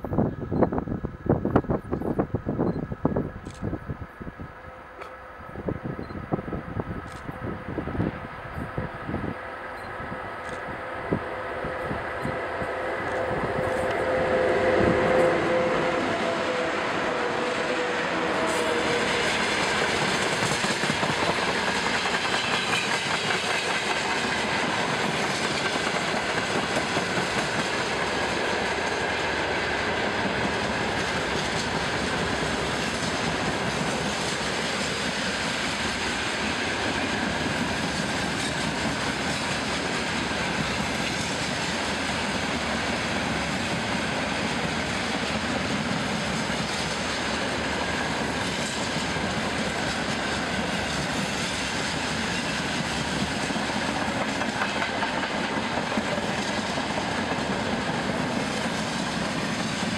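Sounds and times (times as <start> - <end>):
freight train rumbling and rattling: 0.0 - 59.9
wheels clacking over rail joints: 45.4 - 59.9.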